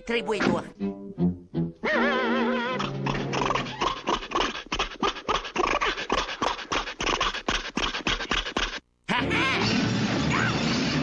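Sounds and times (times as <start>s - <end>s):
duck imitating car engine: 2.0s - 8.8s.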